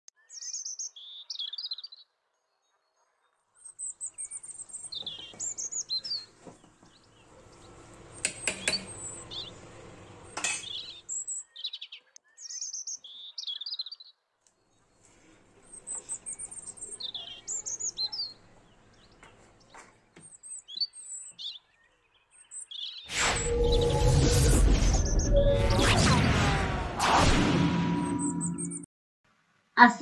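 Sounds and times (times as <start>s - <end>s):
small birds twittering: 0.2s - 23.1s.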